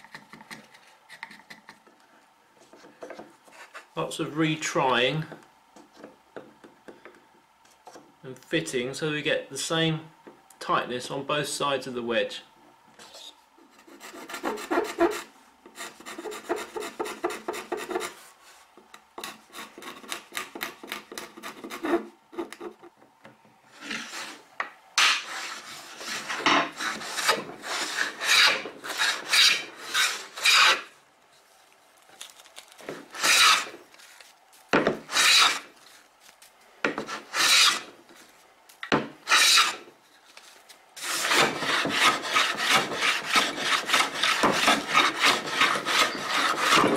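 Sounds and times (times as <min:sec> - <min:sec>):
hand plane cutting wood: 0:13.8 - 0:18.2, 0:19.2 - 0:22.8, 0:25.0 - 0:30.9, 0:33.1 - 0:33.8, 0:35.0 - 0:35.7, 0:37.0 - 0:37.9, 0:39.3 - 0:39.8, 0:41.0 - 0:46.9.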